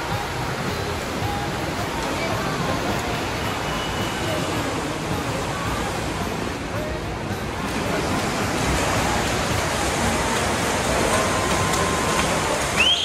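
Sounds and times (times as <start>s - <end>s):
water splashing from swimmers: 0.0s - 13.0s.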